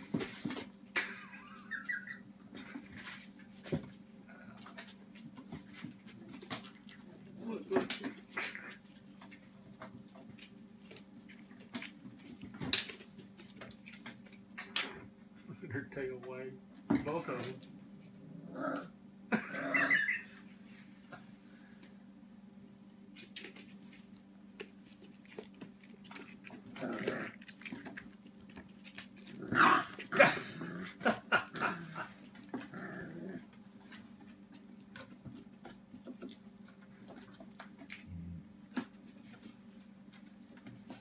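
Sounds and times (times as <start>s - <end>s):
puppies growling and yelping: 1.0s - 3.6s, 8.1s - 9.4s, 18.0s - 20.5s, 24.8s - 35.2s
claws scrabbling on wood: 2.6s - 14.9s, 22.9s - 41.0s.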